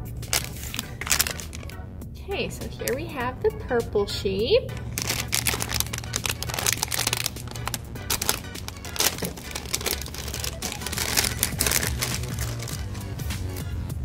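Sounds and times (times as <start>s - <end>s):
plastic package crinkling: 0.3s - 1.8s, 4.8s - 13.0s.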